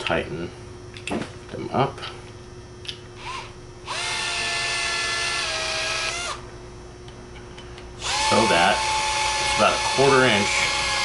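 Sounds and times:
cordless drill whining: 0:03.2 - 0:06.4, 0:08.0 - 0:11.0.

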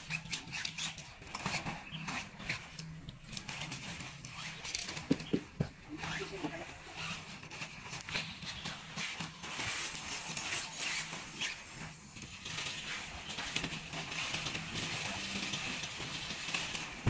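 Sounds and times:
tent fabric rustling: 0:03.5 - 0:15.4.

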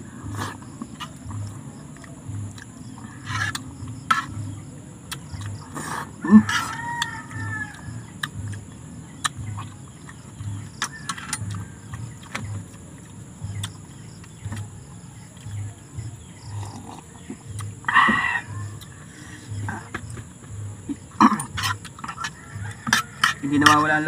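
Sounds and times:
low repeating throb: 0:00.0 - 0:06.6, 0:07.3 - 0:24.0
rooster crowing: 0:06.2 - 0:08.2, 0:10.8 - 0:12.2, 0:22.0 - 0:24.0.

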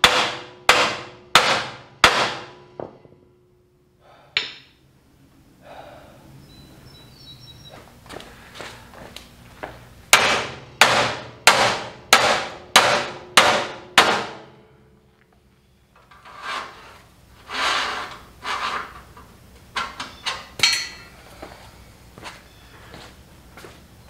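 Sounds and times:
sledgehammer striking steel: 0:00.0 - 0:03.3, 0:10.1 - 0:14.8
metal scraping knocks: 0:16.0 - 0:21.1.

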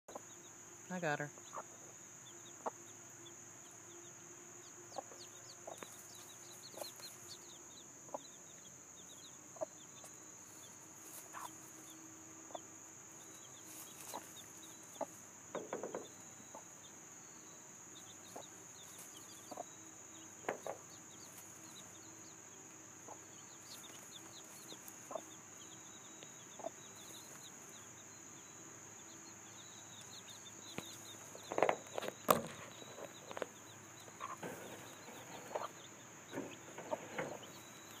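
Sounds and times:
chicks peeping: 0:00.1 - 0:38.0
insect drone: 0:00.1 - 0:38.0
hen clucking: 0:00.9 - 0:02.9, 0:09.5 - 0:09.8, 0:11.2 - 0:11.6, 0:13.6 - 0:16.8, 0:18.3 - 0:19.7, 0:23.0 - 0:25.4, 0:26.4 - 0:27.5, 0:31.1 - 0:38.0.

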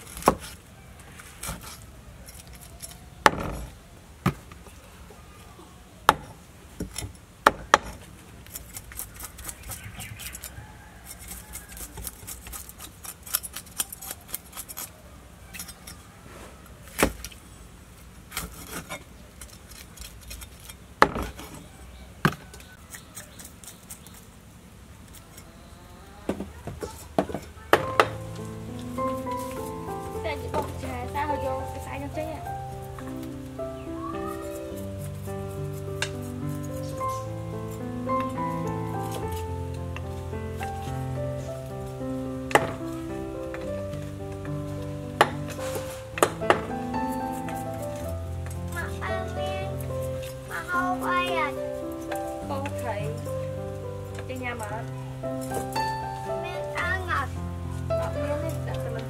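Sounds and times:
cleaver chopping on wooden block: 0:42.5 - 0:42.8.

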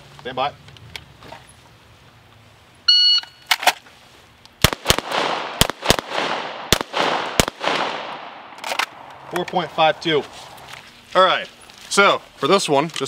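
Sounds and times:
shot timer beep: 0:02.9 - 0:03.4
echoing pistol shots: 0:04.6 - 0:09.1.

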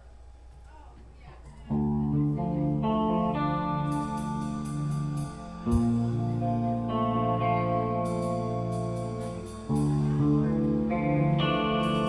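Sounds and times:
guitar chords with effects: 0:01.7 - 0:12.0
live band playing: 0:02.8 - 0:12.0.

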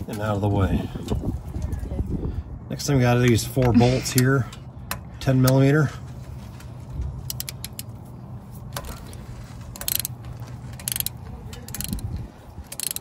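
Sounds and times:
ratchet wrench clicking: 0:07.2 - 0:08.0, 0:09.7 - 0:13.0.

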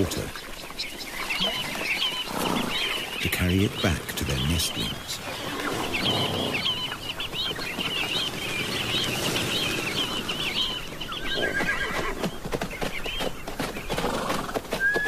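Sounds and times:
flock of birds calling: 0:00.0 - 0:15.0
horse whinnying: 0:11.3 - 0:12.3.

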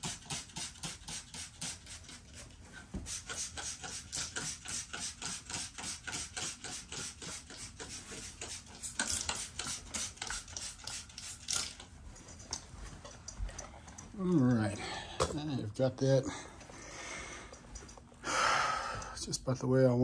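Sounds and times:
spray bottle squirting: 0:00.0 - 0:11.8.

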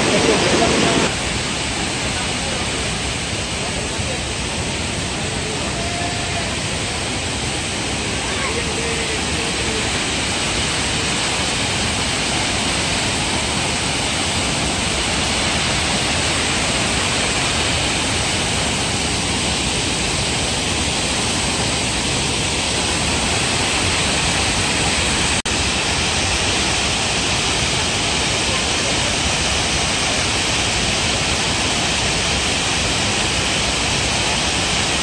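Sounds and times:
waterfall rushing: 0:00.0 - 0:35.0.

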